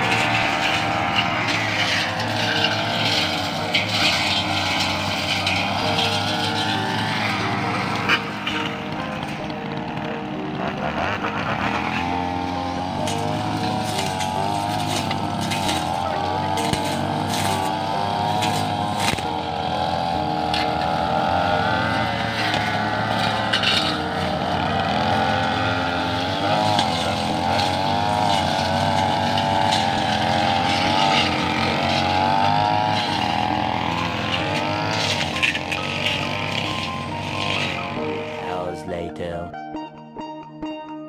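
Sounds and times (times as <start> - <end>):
brush cutter engines whining: 0.0 - 39.4.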